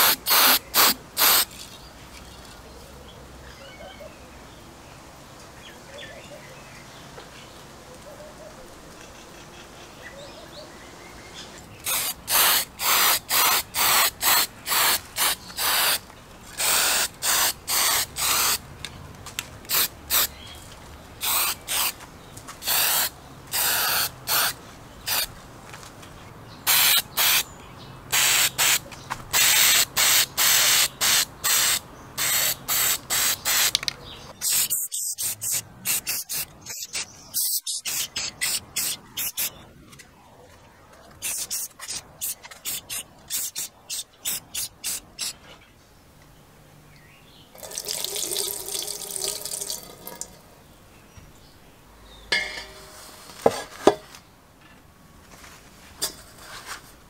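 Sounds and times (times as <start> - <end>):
spray paint can hissing: 0.0 - 1.6, 11.8 - 18.6, 19.7 - 20.3, 21.2 - 22.0, 22.6 - 25.3, 26.7 - 27.4, 28.1 - 39.6, 41.2 - 45.4.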